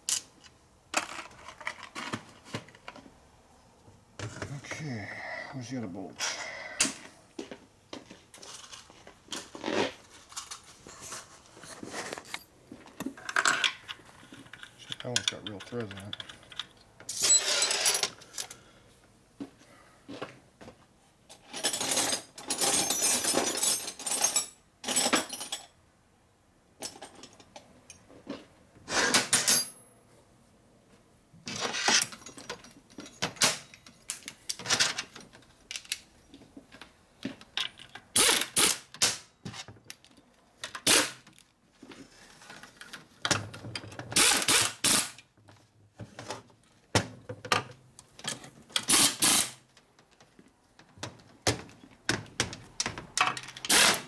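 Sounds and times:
pneumatic air ratchet: 0:38.1 - 0:39.2, 0:40.8 - 0:41.2, 0:44.2 - 0:45.2, 0:48.8 - 0:49.6, 0:53.6 - 0:54.0.

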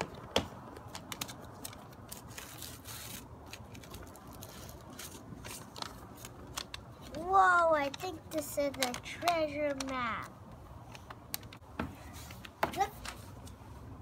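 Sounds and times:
paper map rustling and crinkling: 0:00.0 - 0:13.6.

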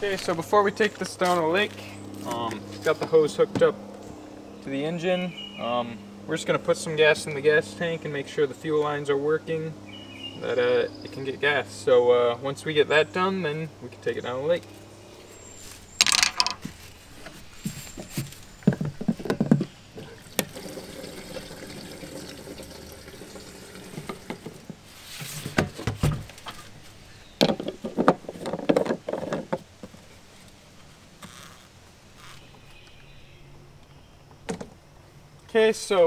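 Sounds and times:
knocks and clunks of gas can: 0:18.6 - 0:21.8
gasoline pouring into tank: 0:20.2 - 0:24.7.

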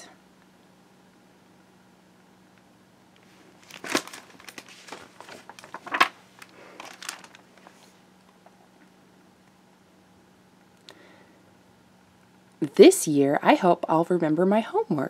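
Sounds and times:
paper and cloth rustling: 0:03.2 - 0:08.0
paper crackles: 0:03.5 - 0:08.0.

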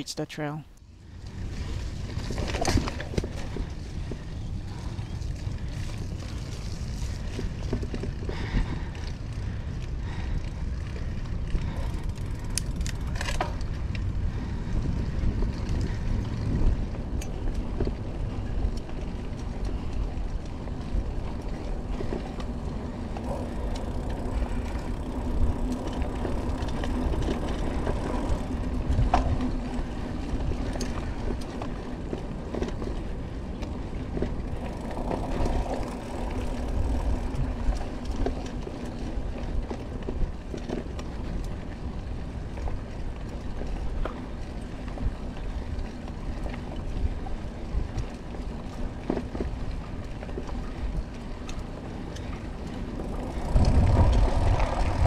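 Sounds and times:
tyres rumbling on dirt: 0:52.8 - 0:55.0
wind on microphone: 0:53.1 - 0:55.0.

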